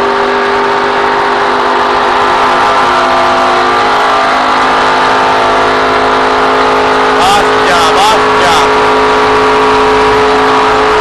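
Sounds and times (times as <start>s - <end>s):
race car engine at full throttle: 0.0s - 11.0s
road noise: 0.0s - 11.0s.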